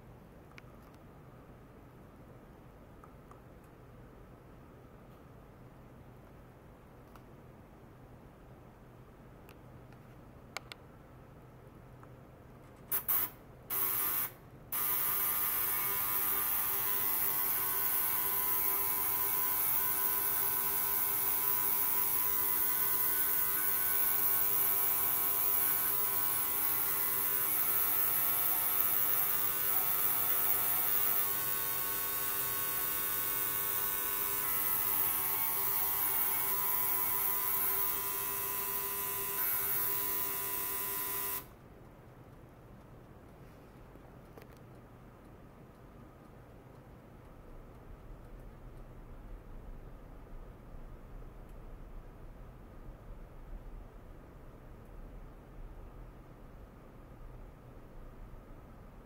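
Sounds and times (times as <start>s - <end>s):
ultrasonic cleaner buzzing hum: 12.9s - 41.6s.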